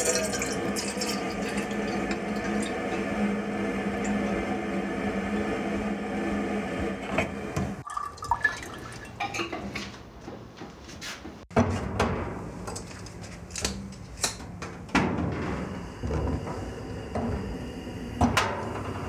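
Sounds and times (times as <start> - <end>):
tap water running into kettle: 0.0 - 3.0, 7.8 - 9.3.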